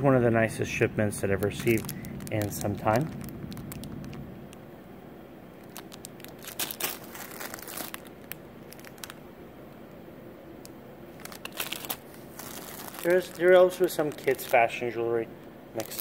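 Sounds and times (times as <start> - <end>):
steady low hum: 0.0 - 16.0
plastic bags crinkling: 1.1 - 4.6, 5.6 - 9.2, 11.1 - 15.2, 15.8 - 16.0.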